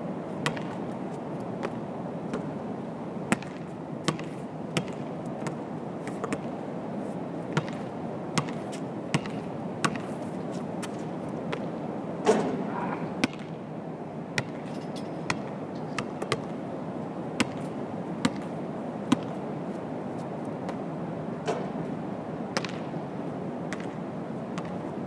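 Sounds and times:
city background noise: 0:00.0 - 0:25.0
basketball bouncing on court: 0:00.4 - 0:00.8, 0:03.3 - 0:05.6, 0:07.6 - 0:10.0, 0:13.2 - 0:13.6, 0:14.4 - 0:14.7, 0:15.3 - 0:16.5, 0:17.4 - 0:17.6, 0:18.2 - 0:18.5, 0:19.1 - 0:19.4, 0:22.6 - 0:22.9, 0:23.7 - 0:24.0, 0:24.6 - 0:24.8
ball hitting hoop: 0:22.6 - 0:22.9.

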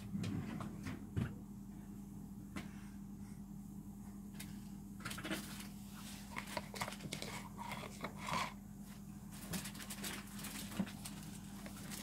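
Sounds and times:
steady low hum: 0:00.0 - 0:12.0
rustling and scrapes from handling: 0:05.1 - 0:12.0.

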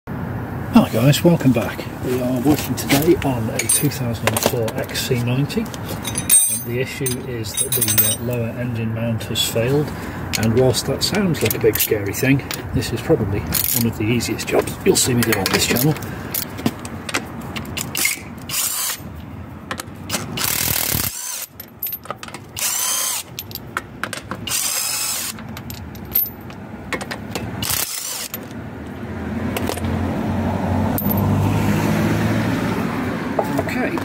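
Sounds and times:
ratchet clicking on wheel bolts: 0:15.2 - 0:19.0, 0:19.7 - 0:26.3, 0:27.0 - 0:28.5
cordless driver whirring: 0:18.0 - 0:19.0, 0:22.6 - 0:23.3, 0:24.5 - 0:25.4, 0:27.6 - 0:28.4.

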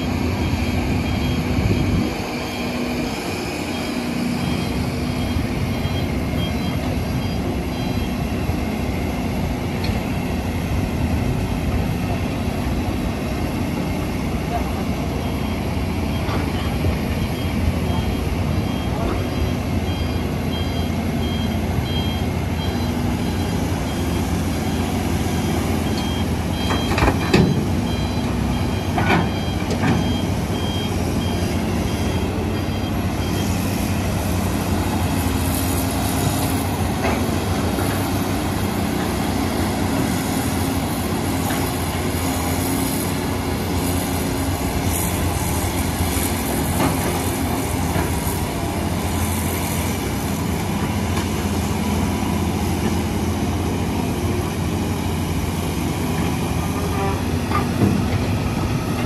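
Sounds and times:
reversing alarm beeping: 0:00.0 - 0:09.0, 0:15.1 - 0:36.9
diesel engines running: 0:00.0 - 0:59.0.

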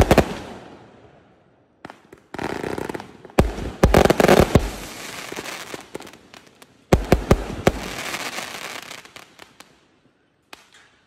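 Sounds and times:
fireworks bangs: 0:00.0 - 0:00.8, 0:01.8 - 0:09.6
fireworks crackling pops: 0:01.8 - 0:11.0.

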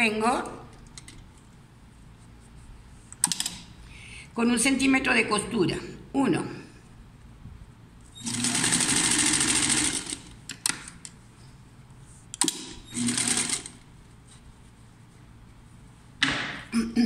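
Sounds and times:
sewing machine stitching: 0:08.2 - 0:10.3, 0:12.4 - 0:13.8.

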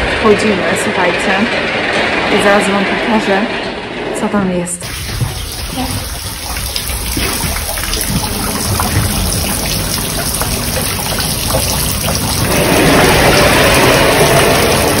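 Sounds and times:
water trickling and rushing: 0:04.8 - 0:15.0.

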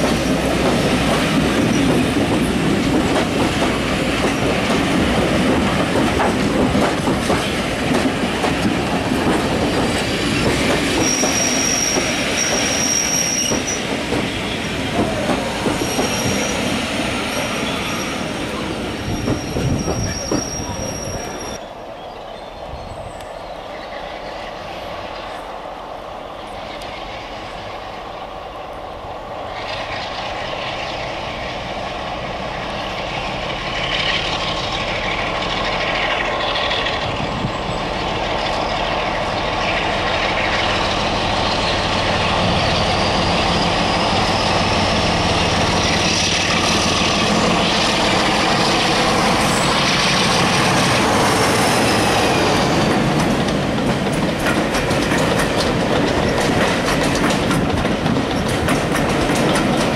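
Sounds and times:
diesel locomotive engine: 0:00.0 - 0:59.9
wheels clattering over rail joints: 0:52.4 - 0:59.9.

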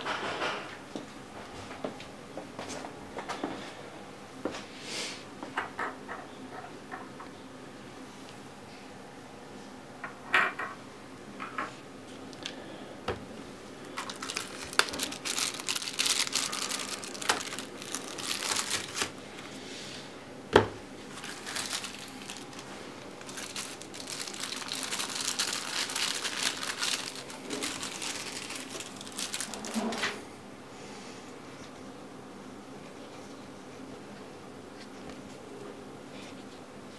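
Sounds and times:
plastic wrapping crinkling: 0:13.8 - 0:19.5, 0:21.0 - 0:30.2.

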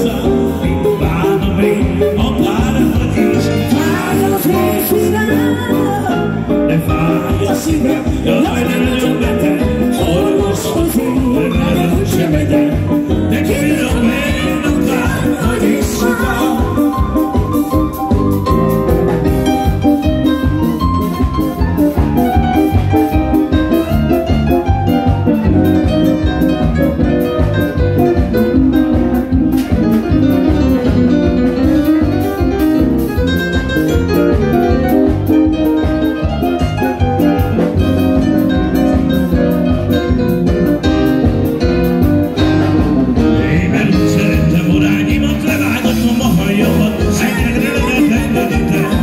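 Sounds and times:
man singing: 0:00.0 - 0:18.1, 0:43.1 - 0:49.0
drums steady beat: 0:00.0 - 0:49.0
fast piano playing: 0:00.0 - 0:49.0.

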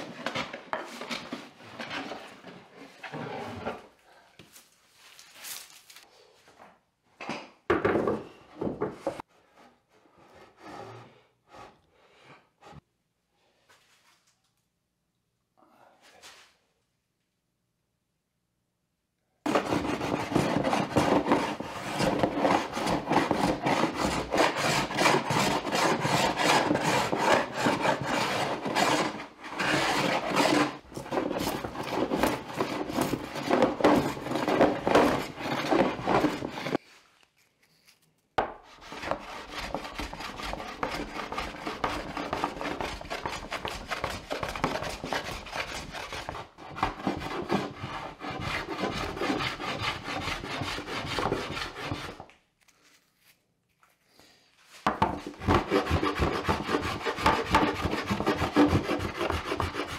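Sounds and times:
hand plane shaving wood: 0:19.5 - 0:36.8, 0:38.7 - 0:52.2, 0:55.2 - 0:59.9.

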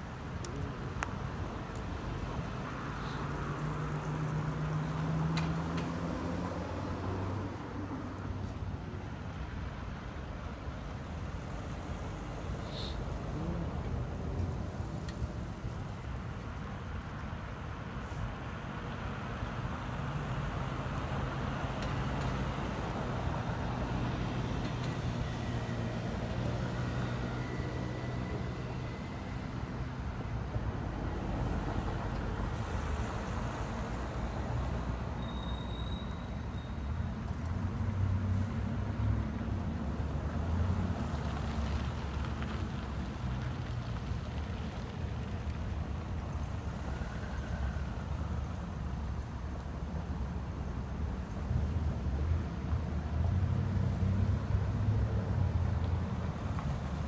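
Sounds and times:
road traffic hum: 0:00.0 - 0:57.0
car passing close by: 0:02.8 - 0:08.0.

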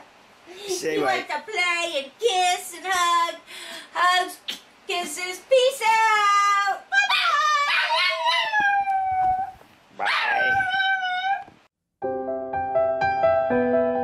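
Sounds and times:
small dog howling: 0:06.9 - 0:11.6.

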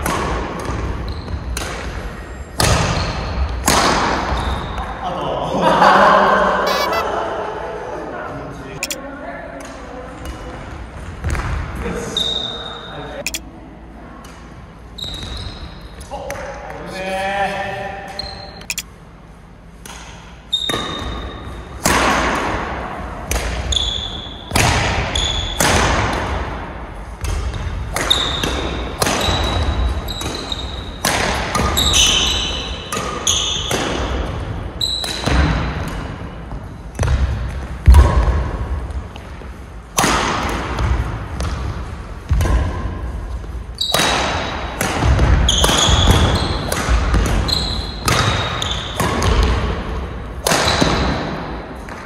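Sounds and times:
shoes squeaking on court floor: 0:01.0 - 0:01.6, 0:06.7 - 0:07.0, 0:45.5 - 0:46.8, 0:47.4 - 0:49.3
rackets striking shuttlecock: 0:43.9 - 0:49.6.

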